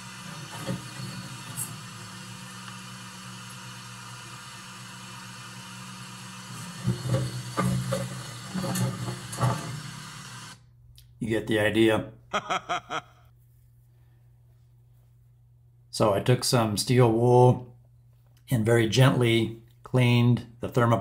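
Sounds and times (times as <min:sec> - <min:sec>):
vacuum cleaner running: 0:00.0 - 0:10.6
hose knocking and scraping: 0:06.7 - 0:09.8.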